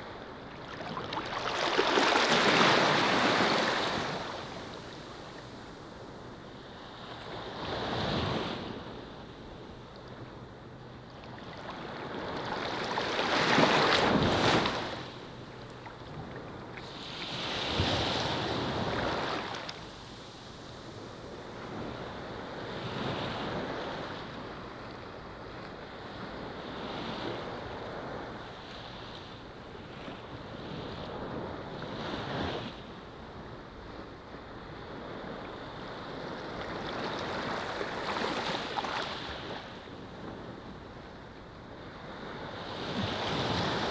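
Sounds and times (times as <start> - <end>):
ocean waves breaking: 0.4 - 5.8, 11.4 - 20.1.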